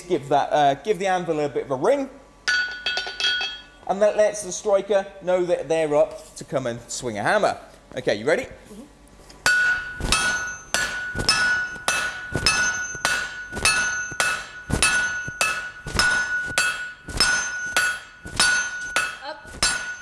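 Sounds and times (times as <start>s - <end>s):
hammers striking steel on anvil: 2.5s - 3.7s, 9.4s - 20.0s
anvil ringing: 2.5s - 3.8s, 9.5s - 20.0s.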